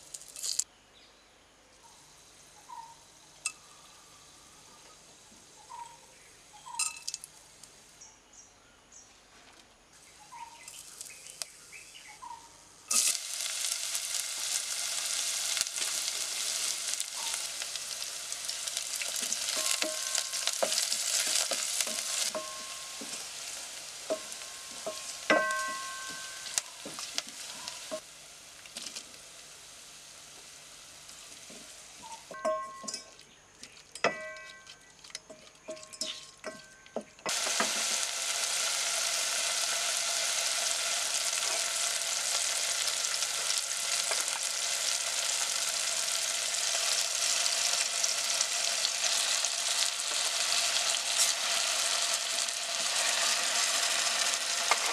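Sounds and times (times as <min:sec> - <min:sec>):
onions frying in oil: 0:00.0 - 0:00.6, 0:10.0 - 0:33.0, 0:37.3 - 0:54.9
loud steady sizzle: 0:00.0 - 0:00.7, 0:10.0 - 0:33.0, 0:37.2 - 0:54.9
spatula knocking against pot: 0:24.1 - 0:26.4.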